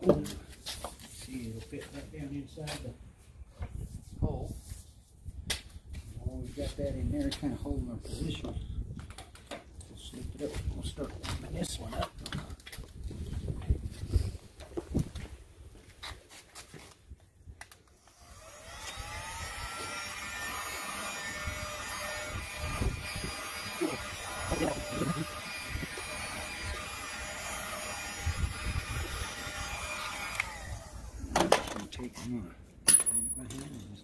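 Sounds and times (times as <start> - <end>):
heat gun fan whining: 17.9 - 31.7.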